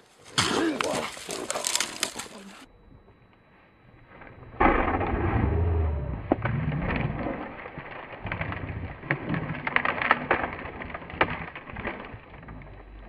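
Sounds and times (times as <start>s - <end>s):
scuffling: 0.0s - 2.7s
animals growling while fighting: 4.6s - 13.0s.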